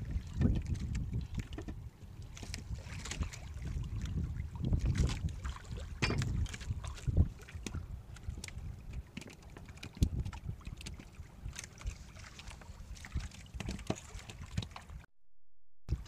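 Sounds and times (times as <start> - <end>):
wind rumbling on microphone: 0.0 - 15.1
knocks on wooden boat: 6.0 - 6.4.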